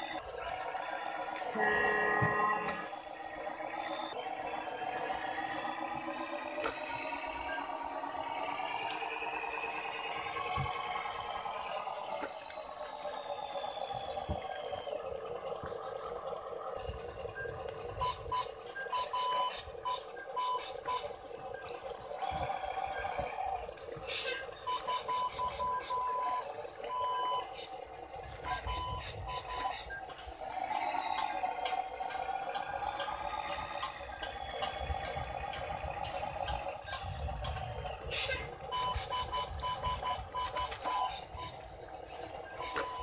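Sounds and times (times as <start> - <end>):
toy truck motor whining: 0.0 - 43.0
short high beeps: 38.7 - 41.6.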